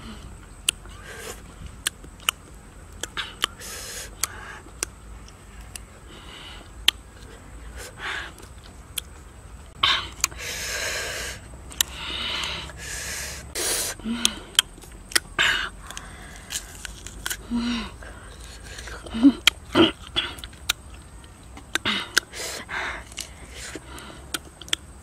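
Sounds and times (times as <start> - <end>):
lip smacks and chewing: 1.8 - 5.9, 18.3 - 24.9
hissing breaths through mouth: 3.6 - 4.7, 9.8 - 14.6.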